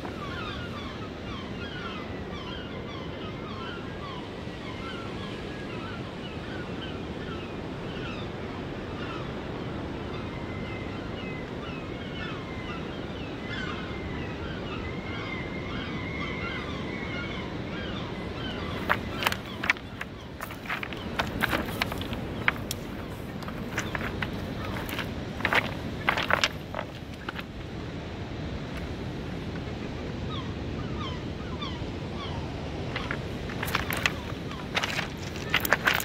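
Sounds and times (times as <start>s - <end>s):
wind: 0.0s - 36.0s
birds chirping: 17.8s - 27.7s, 30.3s - 36.0s
sea surf on shingle: 17.9s - 36.0s
footsteps crunching on pebbles: 18.6s - 27.7s, 32.9s - 36.0s.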